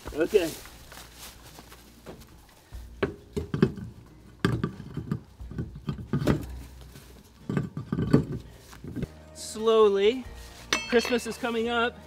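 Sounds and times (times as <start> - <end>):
metallic clinks of wheel on studs: 10.7 - 11.4.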